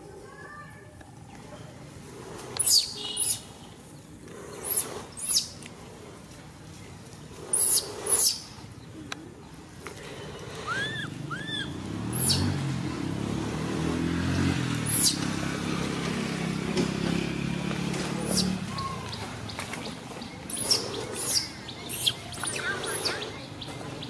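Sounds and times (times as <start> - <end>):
baby monkey squeaking cries: 10.7 - 12.5.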